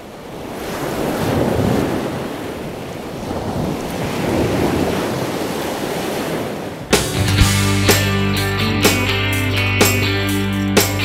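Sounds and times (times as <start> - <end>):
sea waves washing: 0.0 - 8.1.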